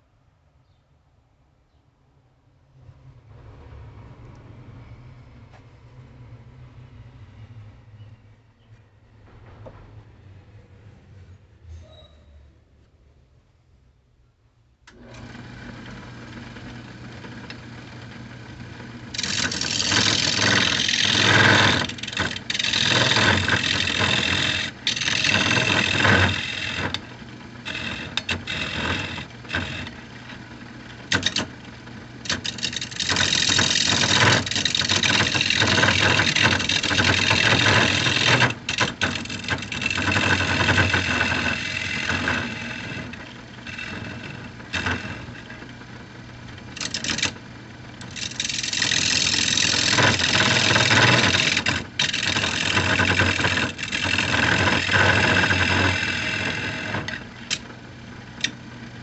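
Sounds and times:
wood lathe motor hum: 0:14.9 - 0:59.0
turning tool scraping wood: 0:15.2 - 0:57.7.

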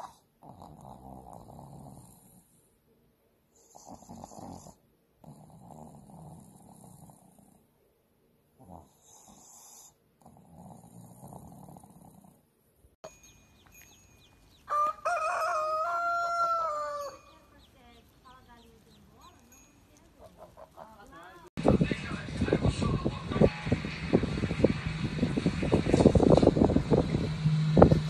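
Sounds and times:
dog snoring: 0:00.0 - 0:02.6, 0:03.6 - 0:07.7, 0:08.6 - 0:12.5
faint high chirping: 0:13.0 - 0:14.9, 0:16.6 - 0:20.7.

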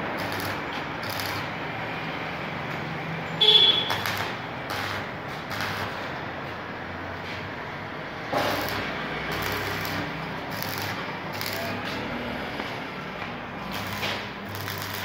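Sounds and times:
welding arc crackling: 0:00.0 - 0:02.8, 0:03.4 - 0:06.3, 0:08.3 - 0:15.0
welding machine hum: 0:00.0 - 0:06.6, 0:07.8 - 0:15.0
loud toot: 0:03.4 - 0:04.1.

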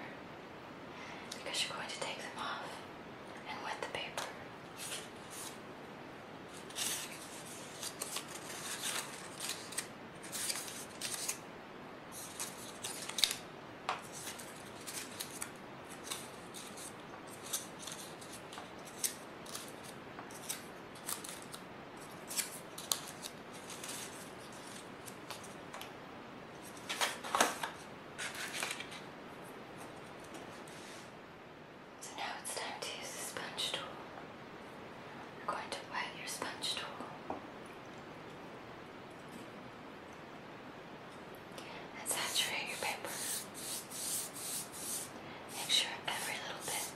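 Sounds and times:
paper rustling and crinkling: 0:04.8 - 0:05.6, 0:06.5 - 0:11.4, 0:12.1 - 0:13.4, 0:14.0 - 0:25.9, 0:26.6 - 0:29.1.

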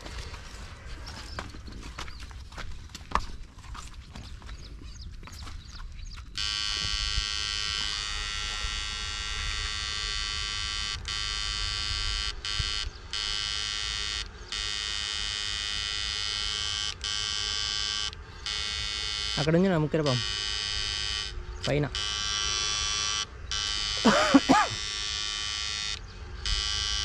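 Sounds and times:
electrofishing unit buzzing: 0:06.3 - 0:27.0.

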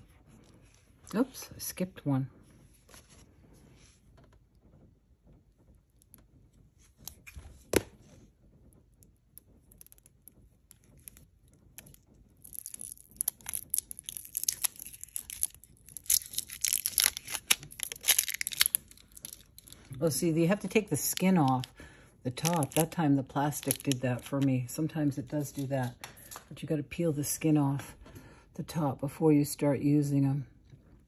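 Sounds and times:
plastic wrapper crinkling and tearing: 0:09.3 - 0:24.5.

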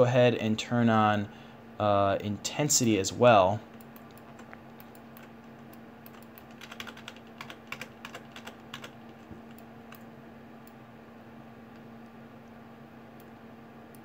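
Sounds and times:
faint steady hum: 0:00.0 - 0:14.0
keyboard keystrokes and clicks: 0:03.7 - 0:10.1.

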